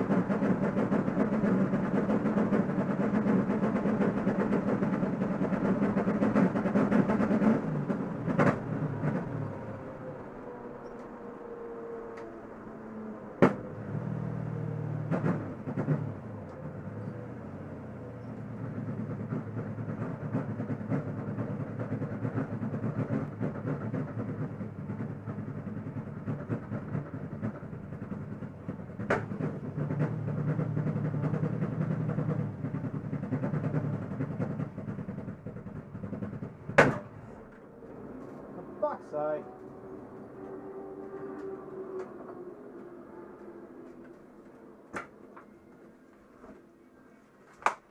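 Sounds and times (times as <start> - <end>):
race car engine running at low revs: 0.0 - 47.1
sharp knocks through car: 36.7 - 37.1.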